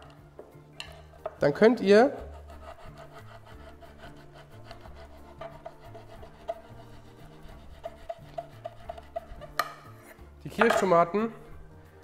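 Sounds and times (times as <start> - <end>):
quiet jazzy background music: 0.0 - 12.0
knife sawing through tomatoes: 2.1 - 10.2.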